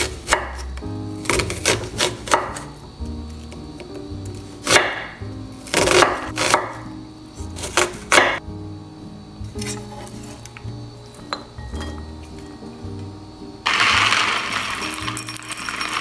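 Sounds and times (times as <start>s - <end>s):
knife slicing onion on board: 0.0s - 2.8s, 3.4s - 8.4s, 9.6s - 10.4s
background music: 0.0s - 16.0s.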